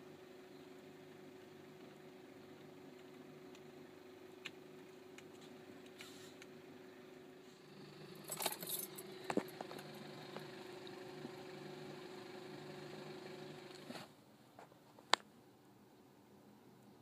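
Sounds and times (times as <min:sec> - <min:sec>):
steady low hum: 0:00.0 - 0:14.6
clicks and rattle of handling: 0:08.2 - 0:09.9.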